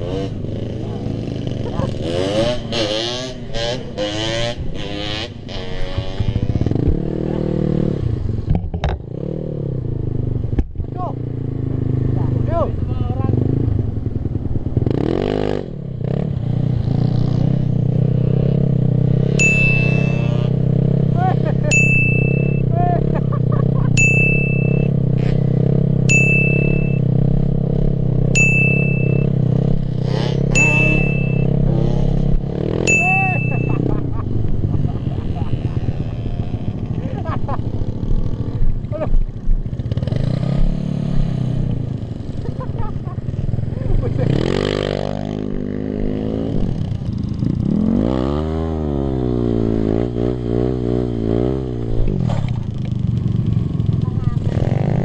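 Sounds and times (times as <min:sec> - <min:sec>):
motorcycle engine revving: 0:00.0 - 0:55.0
ringing dings: 0:19.4 - 0:20.5, 0:21.7 - 0:22.7, 0:24.0 - 0:25.0, 0:26.1 - 0:27.1, 0:28.4 - 0:29.4, 0:30.5 - 0:31.6, 0:32.8 - 0:33.9.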